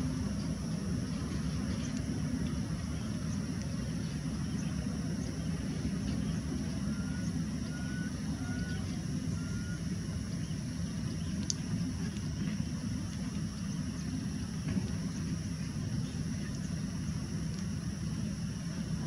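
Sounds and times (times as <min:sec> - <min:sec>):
faint whistled notes: 0:06.9 - 0:09.8.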